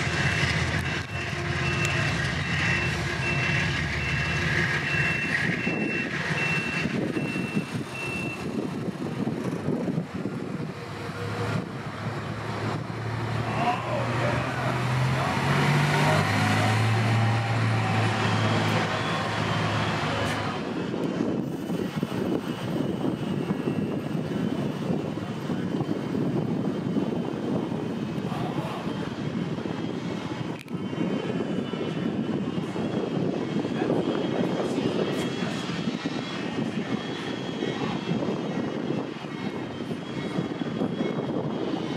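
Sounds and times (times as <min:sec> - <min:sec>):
distant diesel locomotive engine: 0:00.0 - 0:41.9
backup alarm beeping: 0:00.9 - 0:08.5.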